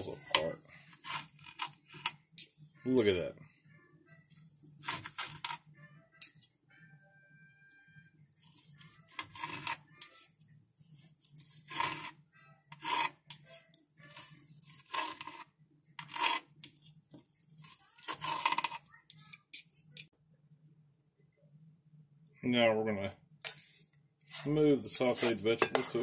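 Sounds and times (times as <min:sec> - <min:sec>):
knife sawing and scraping on glass: 0:00.0 - 0:02.2, 0:08.4 - 0:17.0, 0:17.6 - 0:19.3, 0:24.3 - 0:26.0.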